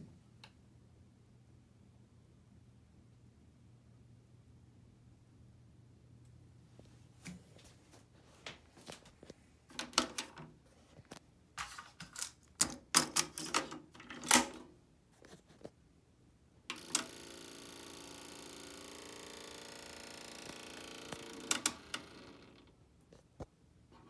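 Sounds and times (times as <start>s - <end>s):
cassette mechanism whirring: 12.6s - 14.7s, 16.7s - 22.8s.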